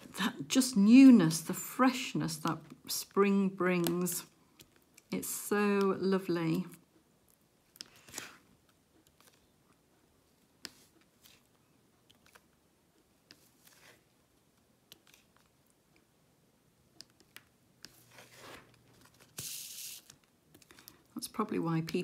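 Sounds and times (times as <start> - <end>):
pen clicking and tapping on tray: 21.8 - 22.0.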